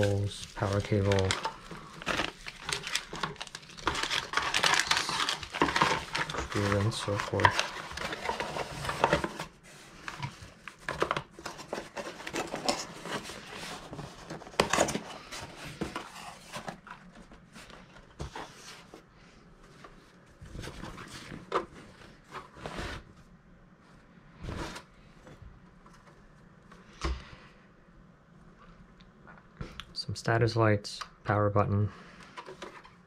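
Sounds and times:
packaging rustling and crinkling: 0.0s - 19.0s.

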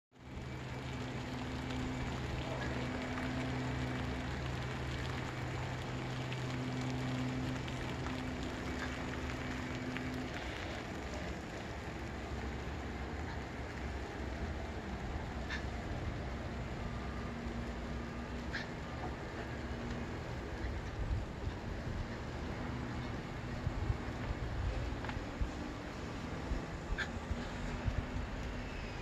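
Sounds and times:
raindrop ticks: 0.2s - 15.8s
low steady hum: 0.2s - 29.0s
rain falling: 0.2s - 29.0s.

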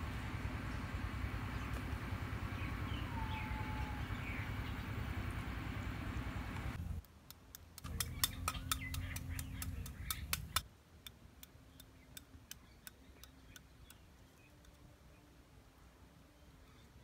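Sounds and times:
knife tapping snail shell: 7.0s - 14.0s.

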